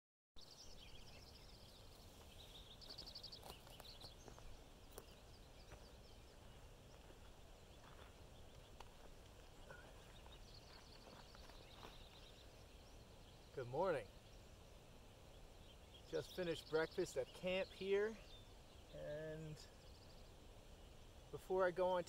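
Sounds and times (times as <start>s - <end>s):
distant birds chirping: 0.4s - 22.0s.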